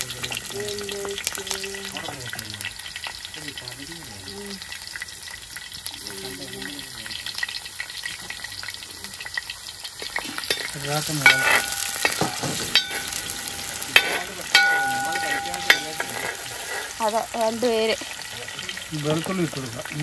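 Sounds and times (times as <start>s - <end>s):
ginger sizzling in hot oil: 0.0s - 20.0s
metal ladle knocking pot: 10.5s - 16.7s.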